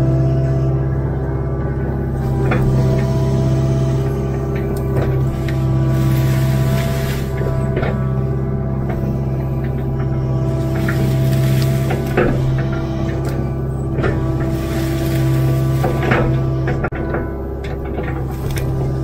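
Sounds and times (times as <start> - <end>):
excavator diesel engine running: 0.0 - 19.0
bucket knocking and scraping: 4.3 - 19.0.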